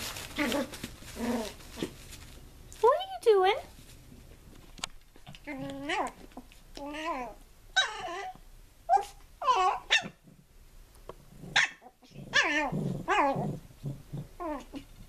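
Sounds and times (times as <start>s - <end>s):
dogs growling: 0.4s - 2.0s, 11.3s - 15.0s
small dogs yipping: 5.2s - 10.2s, 11.5s - 13.4s.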